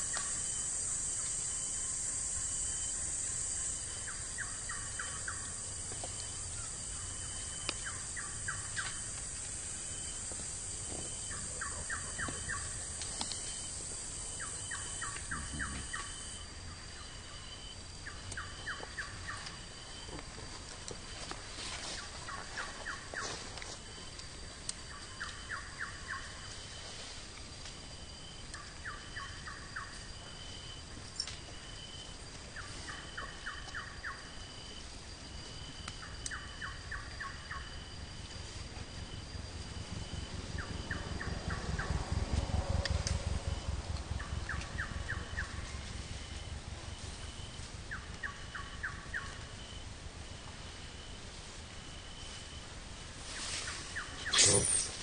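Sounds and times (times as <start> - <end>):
thin steady whine: 0.0 - 55.0
low rumble: 38.9 - 48.8.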